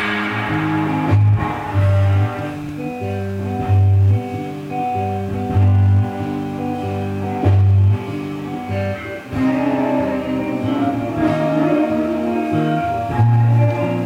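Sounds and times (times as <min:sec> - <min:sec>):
deep swelling note: 0:00.0 - 0:02.8
guitar background music: 0:00.0 - 0:14.0.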